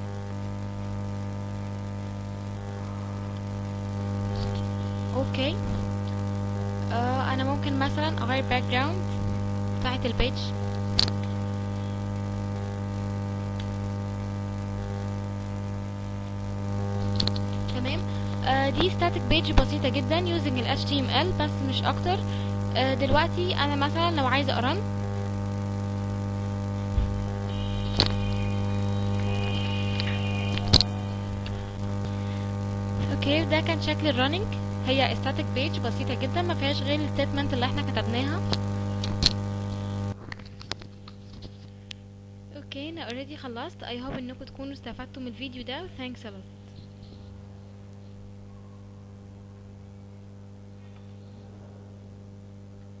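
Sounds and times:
electrical mains hum: 0:00.0 - 0:53.0
low thump: 0:26.9 - 0:27.3
sharp clicks: 0:27.7 - 0:29.2.

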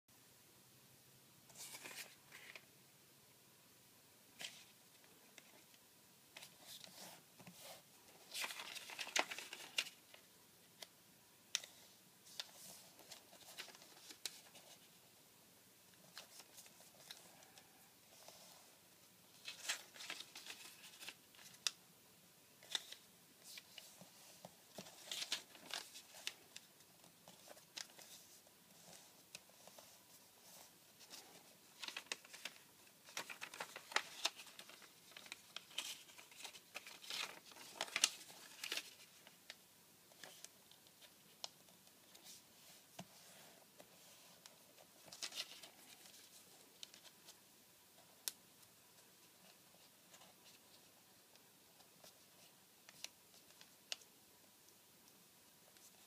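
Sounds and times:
paper crinkling and rustling: 0:01.5 - 0:02.7, 0:06.4 - 0:10.3, 0:11.6 - 0:14.9, 0:19.3 - 0:21.8, 0:22.6 - 0:39.4, 0:40.1 - 0:41.4, 0:42.0 - 0:47.4.

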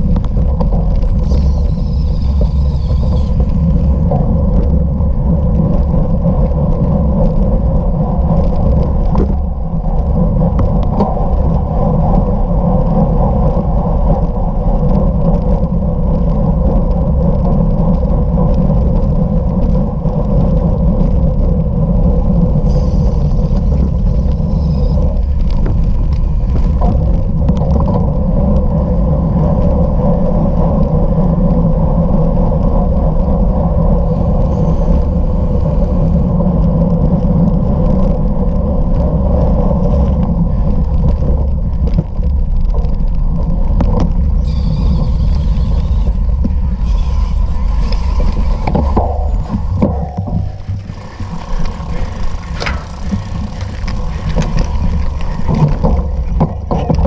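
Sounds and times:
bicycle rolling over rough ground: 0:00.0 - 0:57.0
wind rumble on microphone: 0:00.0 - 0:57.0
high squeal: 0:01.0 - 0:04.0, 0:22.6 - 0:25.2, 0:44.4 - 0:53.8.

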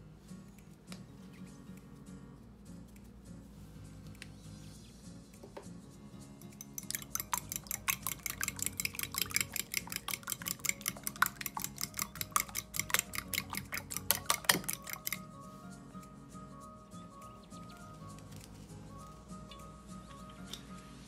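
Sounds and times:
fork clinking against glass bowl: 0:06.4 - 0:15.2.

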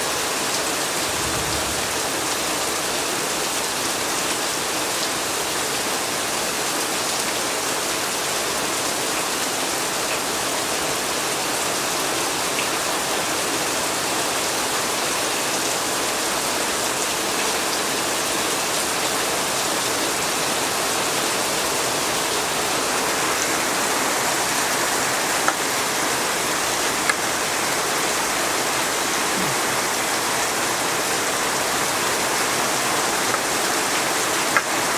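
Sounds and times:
heavy rain hiss: 0:00.0 - 0:34.9.

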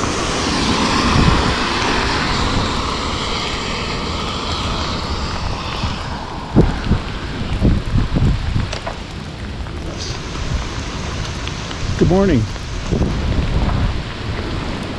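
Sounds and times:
tyres hissing on wet pavement: 0:00.0 - 0:14.9.

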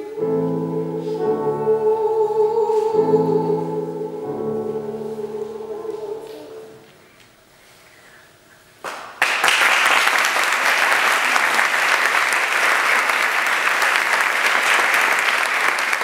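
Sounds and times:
audience applauding: 0:08.8 - 0:16.0.

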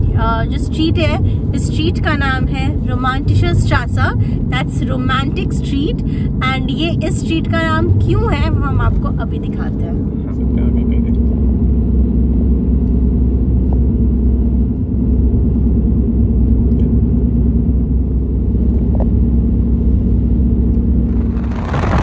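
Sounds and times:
car engine rumble: 0:00.0 - 0:22.0
tyre road noise: 0:20.5 - 0:22.0.

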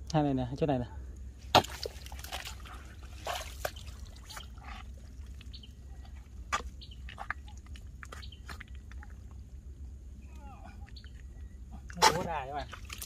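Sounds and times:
wet mud squelches and splashes: 0:01.5 - 0:09.5, 0:11.8 - 0:13.0.

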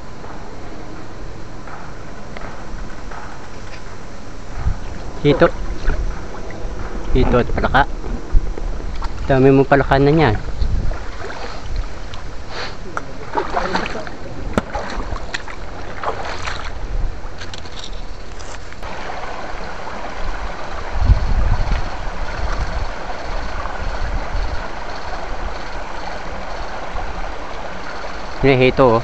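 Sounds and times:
low rumble: 0:00.0 - 0:17.4
creek water running over rocks: 0:08.5 - 0:29.0
splashes and knocks: 0:10.8 - 0:12.2, 0:13.2 - 0:16.8.

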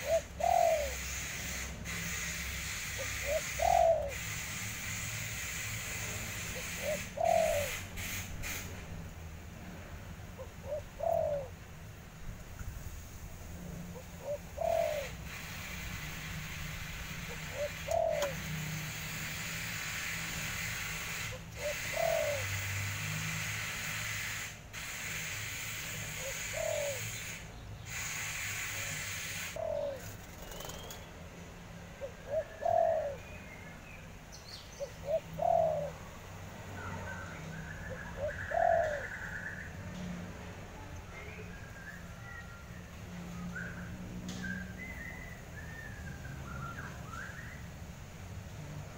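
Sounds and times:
dove cooing: 0:00.0 - 0:05.3, 0:06.3 - 0:08.0, 0:10.4 - 0:11.6, 0:13.9 - 0:16.1, 0:16.8 - 0:19.1, 0:20.6 - 0:22.6, 0:26.0 - 0:27.2, 0:27.9 - 0:31.0, 0:32.0 - 0:33.2, 0:34.8 - 0:36.2, 0:37.9 - 0:39.5
small birds chirping: 0:00.0 - 0:08.6, 0:14.0 - 0:23.5, 0:24.1 - 0:31.4, 0:32.0 - 0:36.0.

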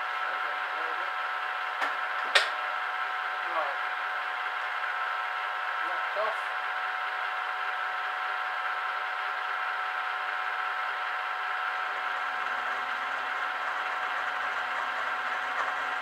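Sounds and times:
mill-drill gear whine: 0:00.0 - 0:16.0.

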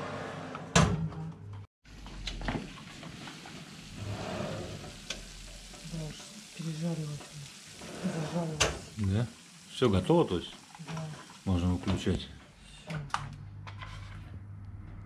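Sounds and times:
pizzas sizzling: 0:01.9 - 0:12.7.

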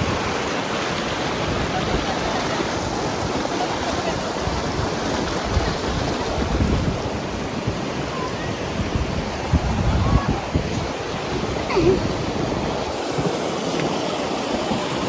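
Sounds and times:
river water rushing: 0:00.0 - 0:15.0
wind buffeting microphone: 0:00.0 - 0:15.0.

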